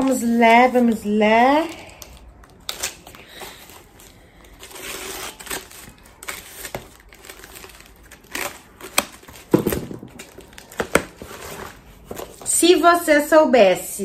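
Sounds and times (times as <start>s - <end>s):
packaging rustling and crinkling: 1.6s - 12.5s.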